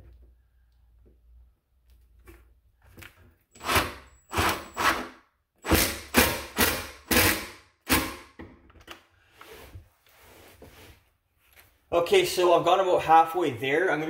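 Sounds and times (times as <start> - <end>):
impact driver bursts: 3.6 - 8.4.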